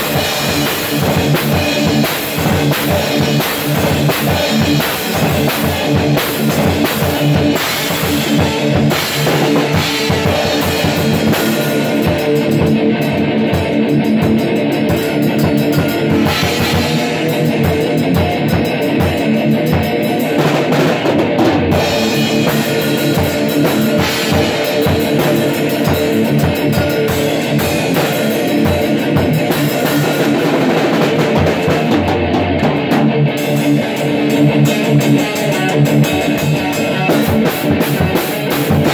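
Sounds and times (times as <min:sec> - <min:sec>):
drum kit playing: 0:00.0 - 0:38.9
electric guitar played hard: 0:00.0 - 0:38.9.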